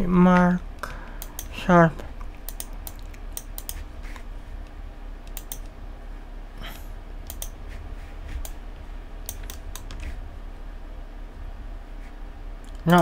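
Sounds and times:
low steady hum: 0.0s - 13.0s
keyboard and mouse clicking: 1.2s - 1.6s, 2.2s - 3.8s, 5.2s - 5.7s, 7.2s - 7.6s, 8.4s - 8.6s, 9.2s - 10.2s, 12.7s - 13.0s.

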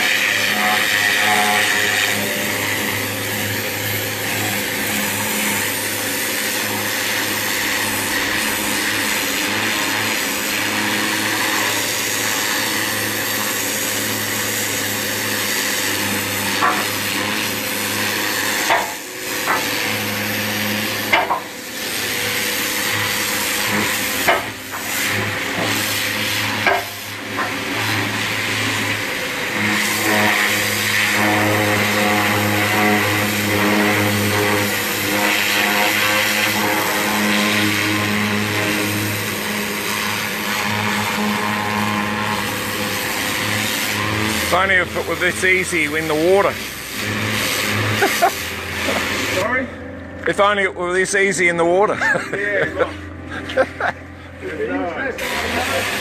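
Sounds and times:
washer motor humming: 0.0s - 56.0s
pressure washer spray hissing: 29.6s - 49.4s, 55.2s - 56.0s.

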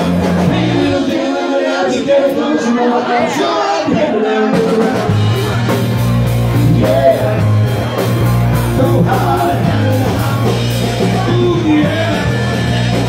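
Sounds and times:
deep bass line: 0.0s - 1.2s, 4.5s - 13.0s
drums: 0.0s - 13.0s
person singing: 0.0s - 13.0s.

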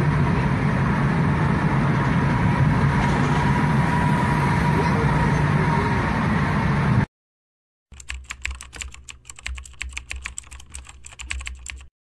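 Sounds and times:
car road noise: 0.0s - 7.1s
keyboard key clicks: 8.0s - 11.9s.

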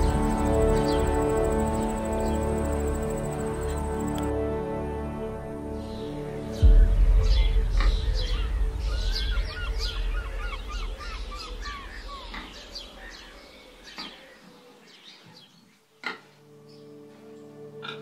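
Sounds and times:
higher bird chirps: 0.0s - 4.3s, 5.8s - 17.0s
birds chirping: 0.0s - 4.4s, 5.6s - 18.0s
low steady drone: 0.0s - 13.8s.

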